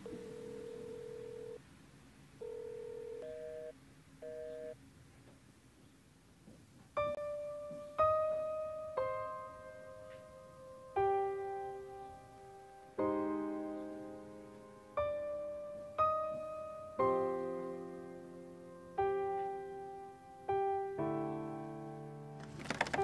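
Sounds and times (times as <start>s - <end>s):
slow piano notes: 0.0s - 1.4s, 6.6s - 23.0s
busy signal pulses: 0.0s - 1.6s, 2.4s - 4.8s
telephone line tone: 0.0s - 1.6s, 2.4s - 4.8s.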